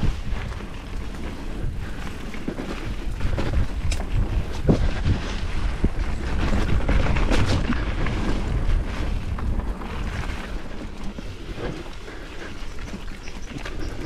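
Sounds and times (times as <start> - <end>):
bike clicks and rattles: 0.0 - 14.0
tyres rolling on dirt: 0.0 - 14.0
wind rushing over microphone: 0.0 - 14.0.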